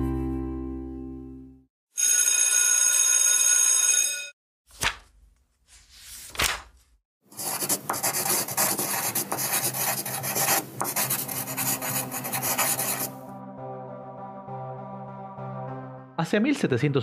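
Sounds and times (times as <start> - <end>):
soft music: 0.0 - 1.6, 11.0 - 17.0.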